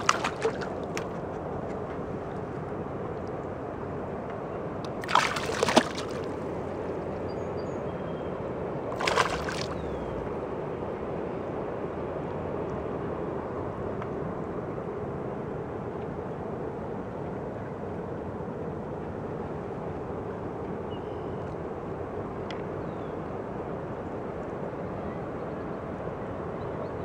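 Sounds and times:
fish splashing in water: 0:00.0 - 0:01.3, 0:04.9 - 0:06.7, 0:09.0 - 0:10.1.

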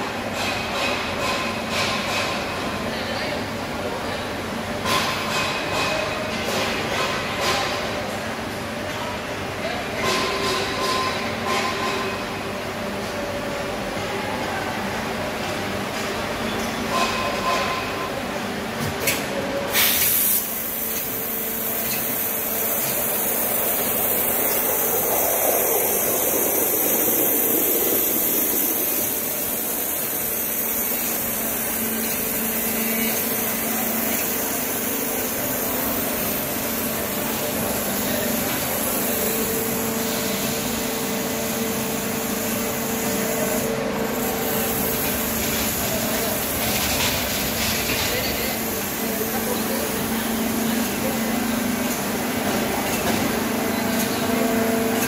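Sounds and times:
waterjet spray hissing: 0:19.8 - 0:36.4.

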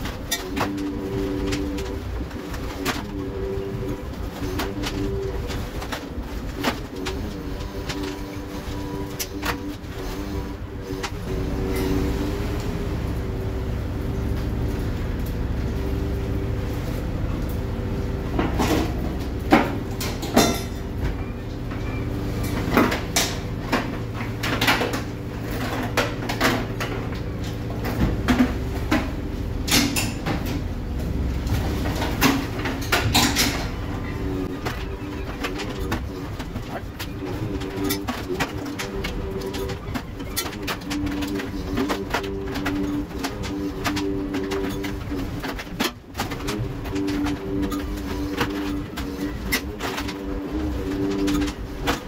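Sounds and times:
boat engine and line hauler droning: 0:00.0 - 0:52.0
humming tones: 0:00.0 - 0:52.0
fish flapping on metal table: 0:31.5 - 0:52.0.

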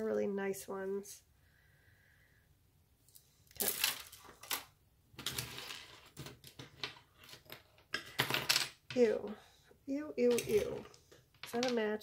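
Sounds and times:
beads and chains clinking: 0:03.5 - 0:04.6, 0:10.2 - 0:11.8.

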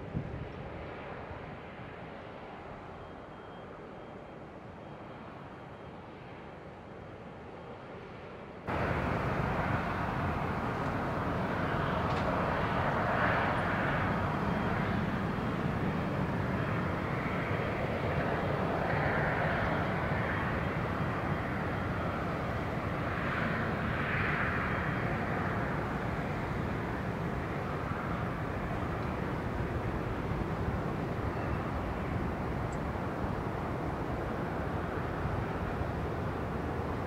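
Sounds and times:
jet engines rushing: 0:07.6 - 0:37.0.

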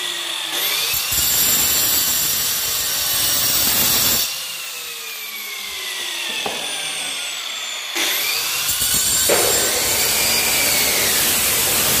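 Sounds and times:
angle grinder motor whine: 0:00.0 - 0:12.0
grinder disc grinding tile: 0:08.0 - 0:12.0.

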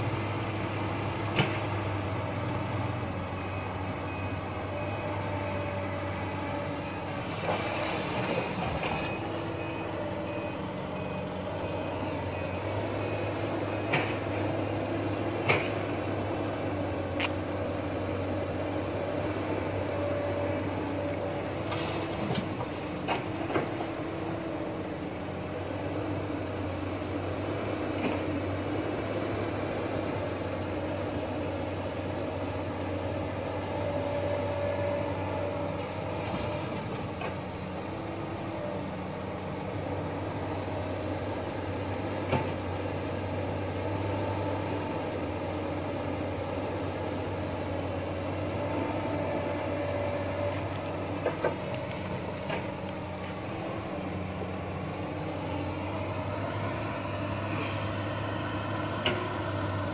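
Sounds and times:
excavator diesel engine running: 0:00.0 - 0:59.9
hydraulic whine: 0:29.8 - 0:59.9.

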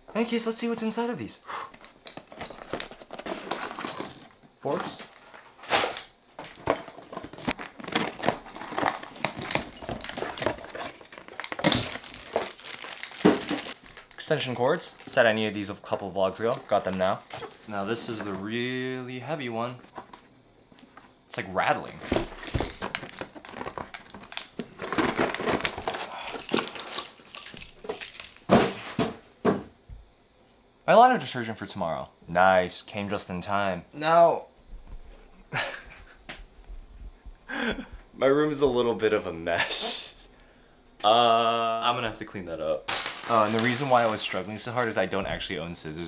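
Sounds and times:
cardboard rustling and scraping: 0:02.2 - 0:14.2, 0:21.8 - 0:27.3.

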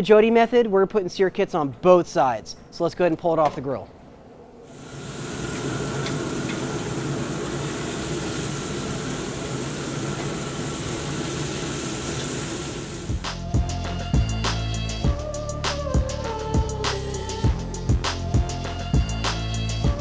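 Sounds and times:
low steady hum: 0:03.7 - 0:13.8
burger patty sizzling: 0:04.7 - 0:13.4
music with drum hits: 0:13.1 - 0:20.0.

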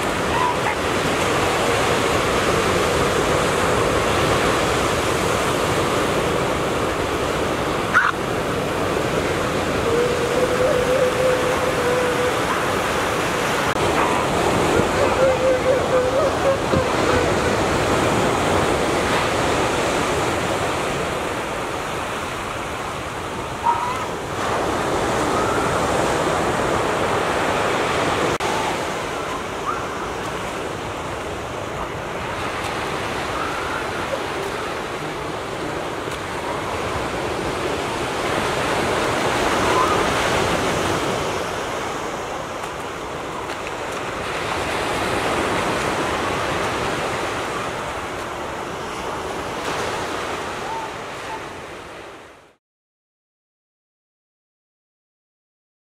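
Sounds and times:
waves washing against rocks: 0:00.0 - 0:50.4
faint calls: 0:07.9 - 0:08.2, 0:09.4 - 0:18.3.

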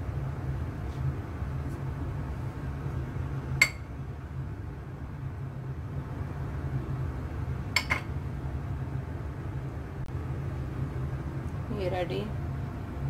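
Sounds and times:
steady low hum: 0:00.0 - 0:13.0
glass bowl clinks: 0:03.6 - 0:03.9.

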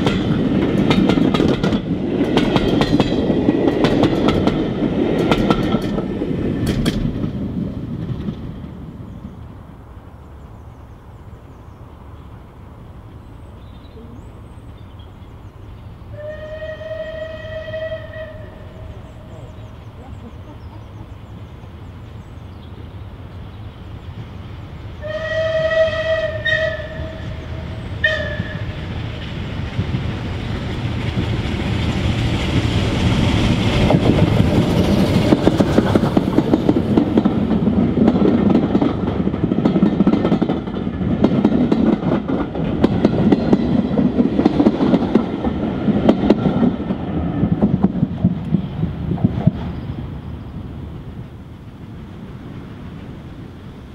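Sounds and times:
wheels clattering over rail joints: 0:00.0 - 0:08.9
steam locomotive exhaust beats: 0:14.0 - 0:53.9
steam locomotive whistle: 0:16.1 - 0:19.5, 0:25.0 - 0:28.8.

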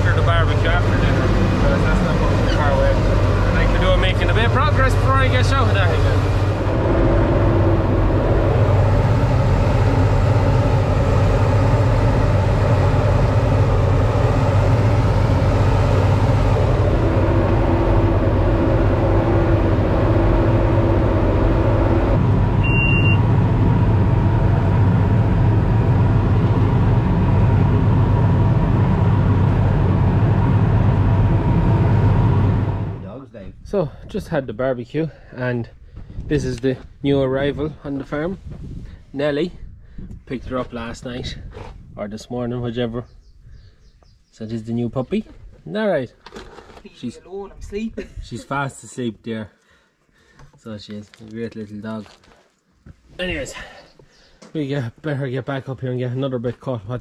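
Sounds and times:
tractor engine running: 0:00.0 - 0:33.0
short electronic beep: 0:22.6 - 0:23.3.

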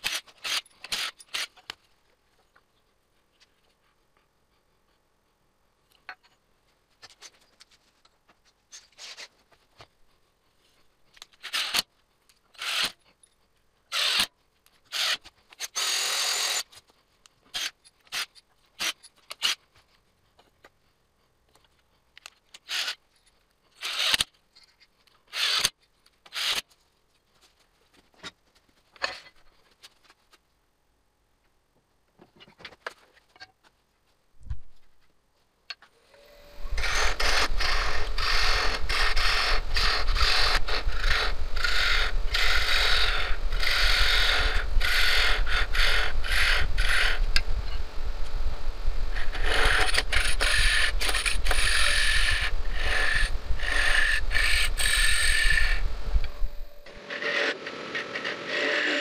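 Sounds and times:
power driver driving screws: 0:00.0 - 0:01.7, 0:11.4 - 0:11.9, 0:12.5 - 0:13.0, 0:13.9 - 0:14.3, 0:14.9 - 0:16.7, 0:22.5 - 0:23.0, 0:23.8 - 0:24.3, 0:25.3 - 0:26.7, 0:36.7 - 0:47.2, 0:49.2 - 0:55.8
lathe gouge cutting wood: 0:56.9 - 0:59.0.

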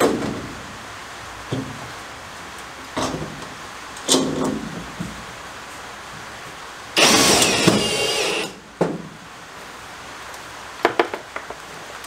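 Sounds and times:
cordless drill whirring: 0:07.0 - 0:08.6.

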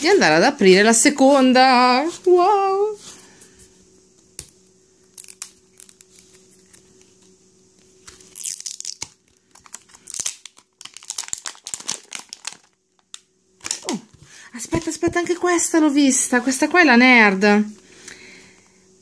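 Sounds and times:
plastic shrink-wrap crinkling and tearing: 0:05.1 - 0:06.8, 0:08.0 - 0:14.2.

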